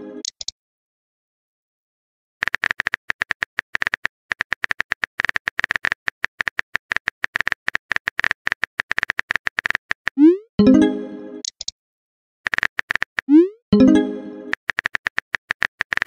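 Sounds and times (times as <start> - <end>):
phone keyboard typing clicks: 2.4 - 10.2, 12.5 - 13.3, 14.5 - 16.0.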